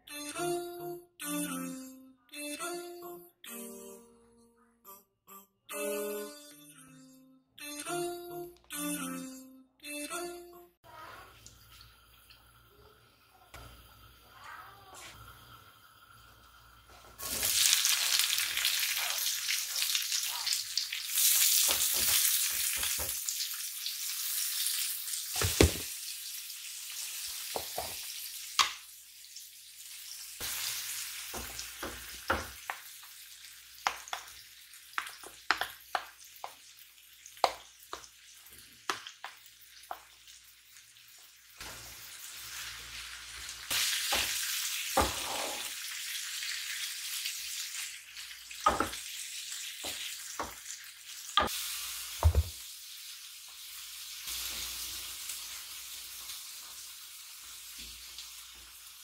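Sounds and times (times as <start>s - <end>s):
food sizzling in frying pan: 10.9s - 59.0s.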